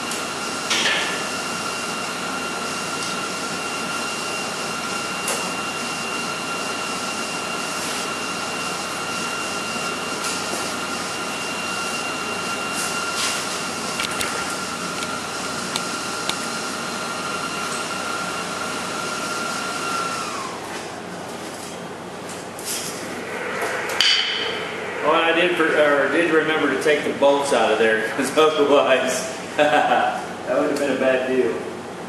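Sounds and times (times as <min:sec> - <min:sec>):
whirring machine or fan: 0:00.0 - 0:32.0
faint high whine: 0:22.3 - 0:29.2.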